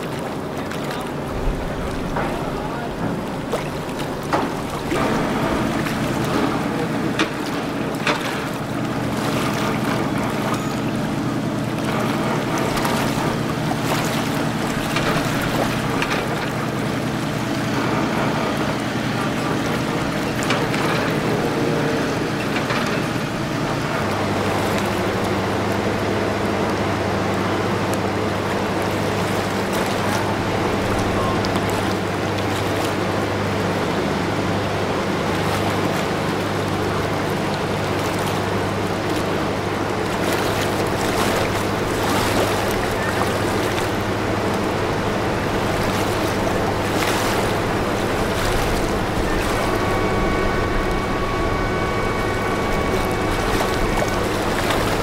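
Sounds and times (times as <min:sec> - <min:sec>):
boat engine droning: 0:00.0 - 0:55.0
water noise: 0:00.0 - 0:55.0
wind: 0:00.0 - 0:55.0.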